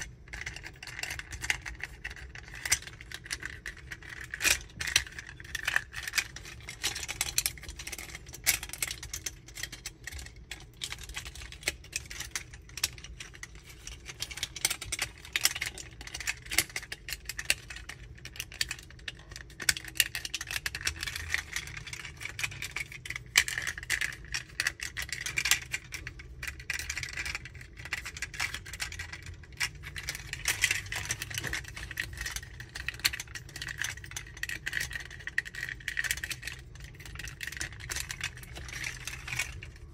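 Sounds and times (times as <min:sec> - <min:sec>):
plastic toy parts clicking: 0:00.0 - 0:39.9.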